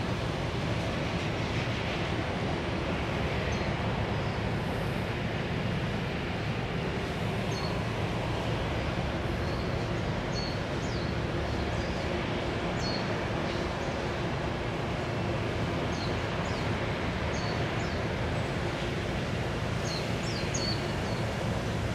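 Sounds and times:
outdoor ambient noise: 0.0s - 21.9s.

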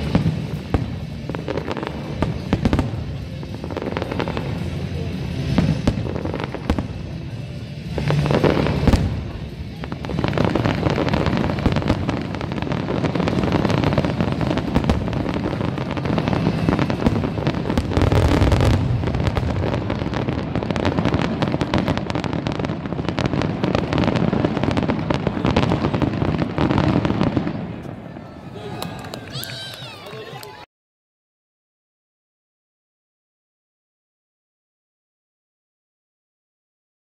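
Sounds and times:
fireworks bangs and crackling: 0.0s - 30.6s
deep firework boom: 7.9s - 27.7s.

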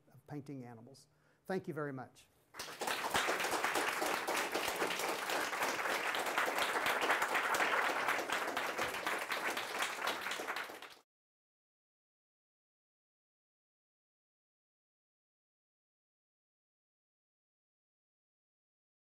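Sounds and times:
audience applauding: 2.6s - 11.0s.

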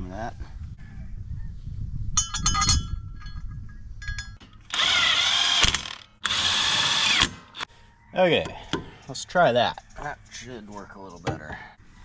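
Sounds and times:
metal parts clinking and rattling: 2.2s - 4.8s
power drill drilling into metal: 4.7s - 7.4s.

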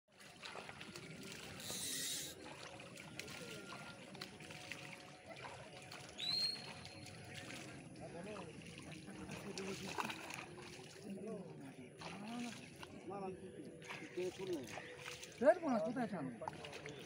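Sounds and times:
faint water splashing: 0.1s - 17.0s
short high chirp: 1.6s - 2.4s.

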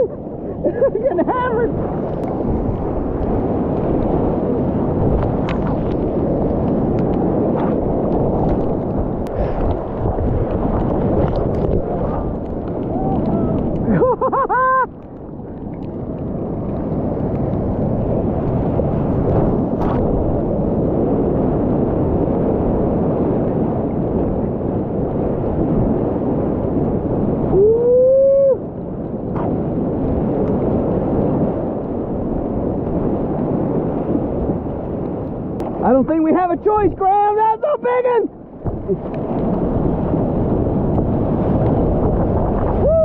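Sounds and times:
ocean surf and whitewater rushing: 0.0s - 43.0s
person whooping: 12.8s - 14.9s, 27.5s - 28.6s, 42.8s - 43.0s.

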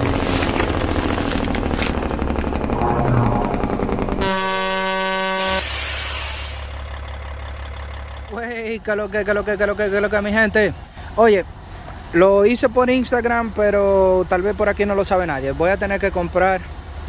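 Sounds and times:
low steady rumble: 0.0s - 5.7s
whooshing effects: 0.0s - 5.8s
truck air horn blast: 2.8s - 6.7s.

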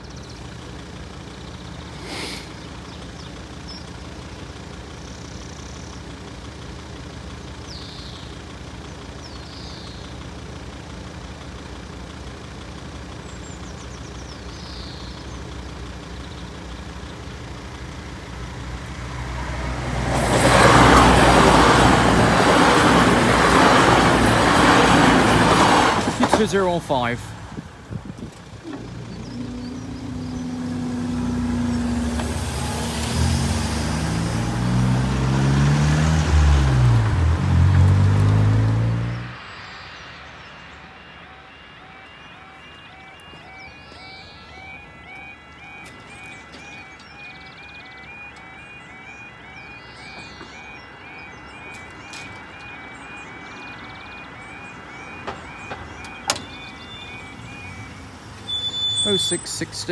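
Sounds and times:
cars pulling away: 0.0s - 59.9s
crossing barriers humming: 0.0s - 59.9s
warbling level crossing alarm: 40.7s - 59.9s.

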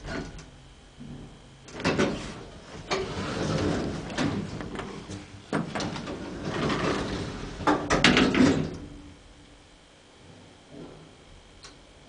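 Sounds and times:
elevator doors rumbling: 1.2s - 9.1s.

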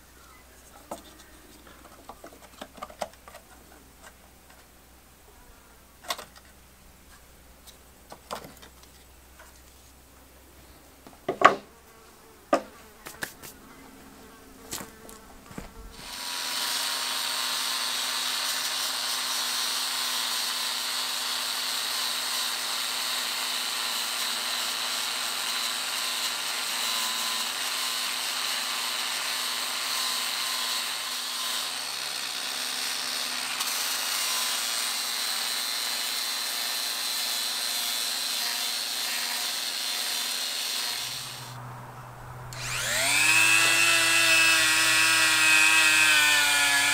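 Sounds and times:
knocks of wooden wheel parts: 11.1s - 11.7s
angle grinder grinding metal: 15.9s - 46.9s.

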